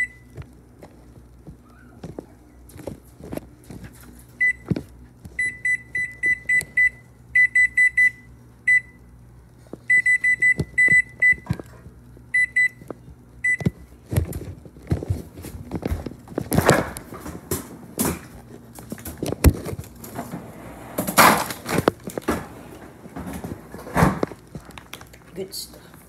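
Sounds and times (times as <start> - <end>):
oven control panel beeping: 0.0 - 0.4, 5.4 - 9.1, 9.9 - 11.7, 12.3 - 12.8, 13.4 - 13.8.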